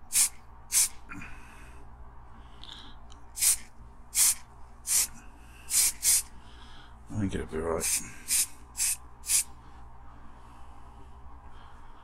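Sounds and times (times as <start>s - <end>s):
spray paint can hissing: 0.0s - 1.0s, 3.4s - 5.1s, 5.7s - 6.3s, 7.8s - 9.5s.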